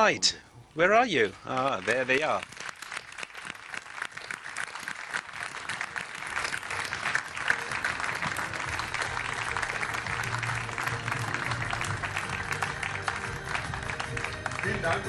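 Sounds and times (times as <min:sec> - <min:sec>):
audience applauding: 0:00.9 - 0:15.0
music with steady bass: 0:08.4 - 0:15.0.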